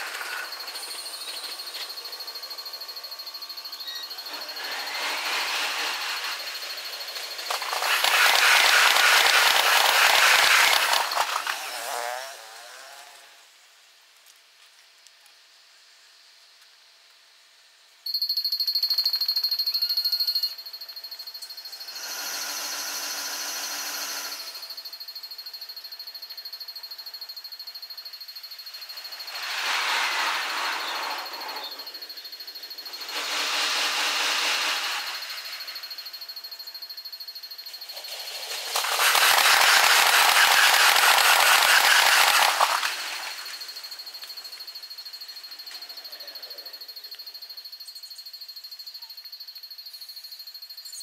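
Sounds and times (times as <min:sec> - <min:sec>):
fast pulsing high tone: 0:00.0 - 0:11.9, 0:37.7 - 0:44.3
electric train passing: 0:00.0 - 0:12.0, 0:28.6 - 0:36.3, 0:37.7 - 0:45.0.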